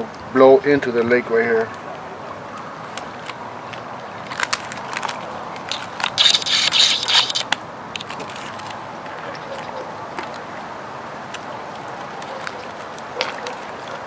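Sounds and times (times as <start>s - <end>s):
plastic packaging crinkling: 4.3s - 8.8s.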